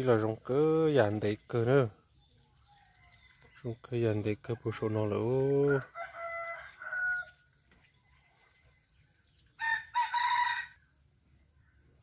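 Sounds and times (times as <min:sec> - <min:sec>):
rooster crowing: 0:05.6 - 0:07.4, 0:09.6 - 0:10.8.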